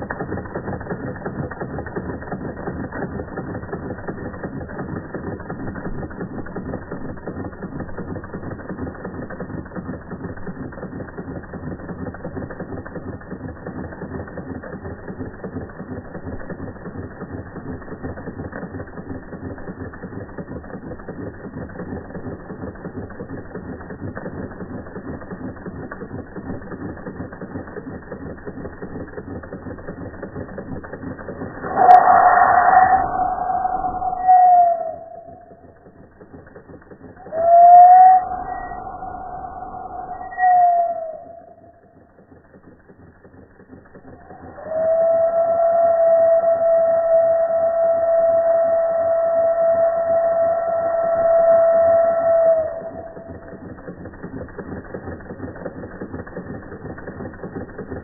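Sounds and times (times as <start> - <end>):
toy steam engine clattering: 0.0 - 31.7, 50.7 - 58.0.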